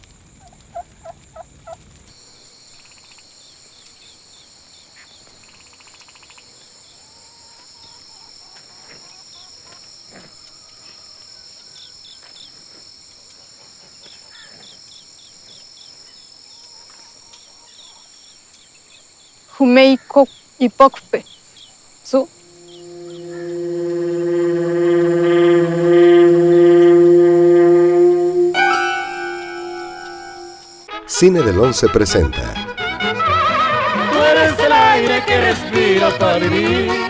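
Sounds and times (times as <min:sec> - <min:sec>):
insect chorus chirring: 0:00.0 - 0:32.6
bird chirps: 0:21.2 - 0:24.5.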